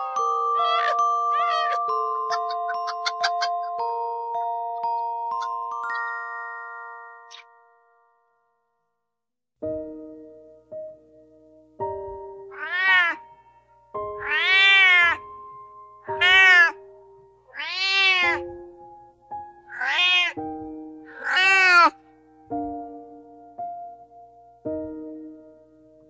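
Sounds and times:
soft piano music: 0.0s - 8.5s, 9.6s - 26.0s
cat meowing: 0.6s - 1.8s, 12.5s - 13.2s, 14.1s - 15.3s, 16.0s - 16.8s, 17.5s - 18.5s, 19.7s - 20.4s, 21.1s - 22.0s.

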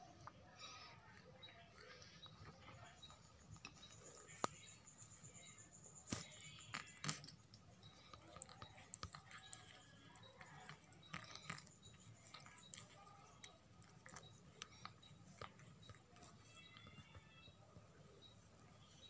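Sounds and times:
cat licking its fur: 6.8s - 16.4s.

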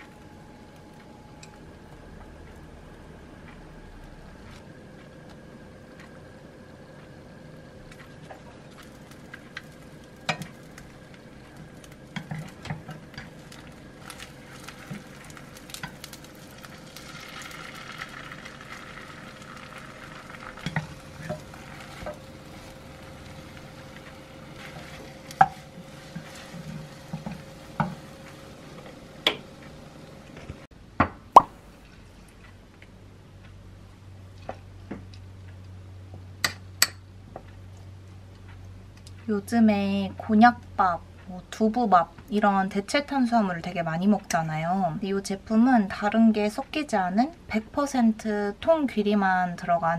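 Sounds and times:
egg sizzling in a pan: 7.8s - 30.7s.

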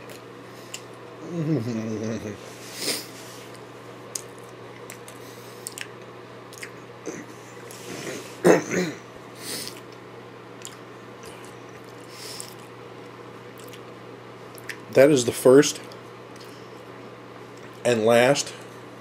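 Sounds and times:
person humming: 1.2s - 2.5s
person chewing: 3.5s - 6.9s, 10.6s - 14.8s
wet mouth clicks: 4.1s - 6.8s.

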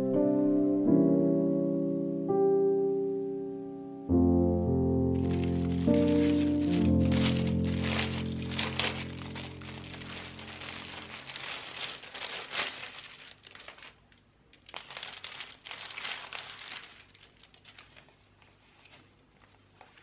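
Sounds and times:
plastic packaging crinkling: 5.2s - 20.0s.

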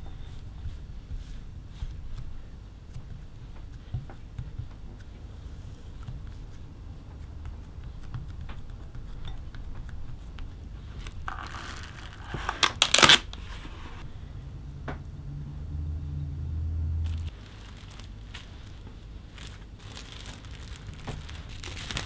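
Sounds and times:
cling film crinkling off roll: 11.0s - 13.4s, 17.1s - 22.0s
cling film ripping: 11.3s - 13.4s, 17.1s - 18.8s, 19.4s - 22.0s.

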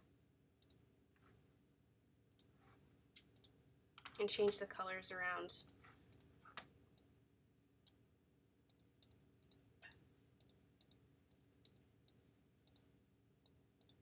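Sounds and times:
faint computer mouse clicks: 8.7s - 12.9s, 13.5s - 14.0s.

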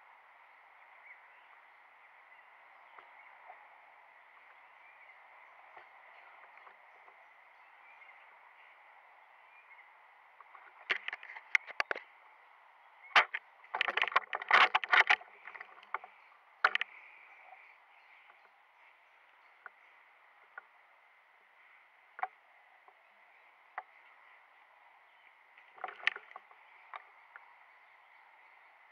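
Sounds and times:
sharp clicks and knocks: 10.5s - 12.1s, 13.1s - 17.0s, 25.7s - 27.0s.

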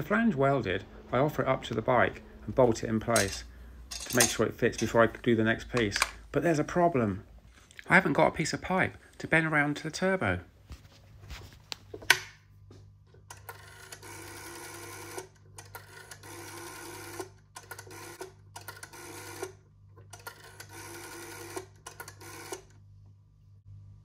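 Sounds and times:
rotary phone dial whirring: 13.3s - 22.8s.

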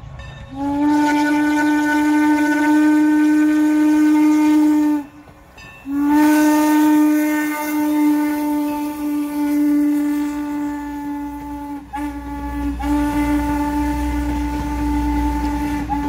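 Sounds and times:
steam locomotive whistle: 0.0s - 16.0s.

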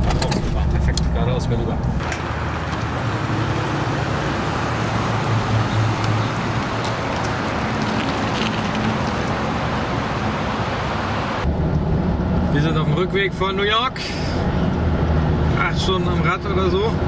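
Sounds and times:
traffic noise: 0.0s - 17.0s
vehicle driving by: 2.0s - 12.6s.

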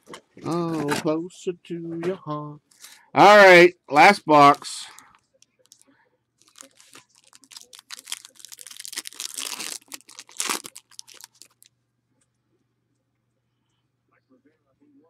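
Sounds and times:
plastic wrapper crinkling and tearing: 6.4s - 11.7s.

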